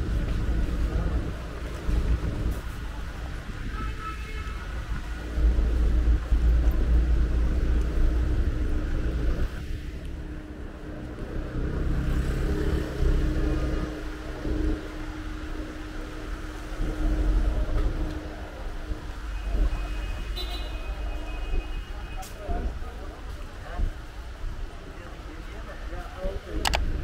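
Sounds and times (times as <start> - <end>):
steady traffic hum: 0.0 - 27.0
vehicle engine rumbling: 0.0 - 27.0.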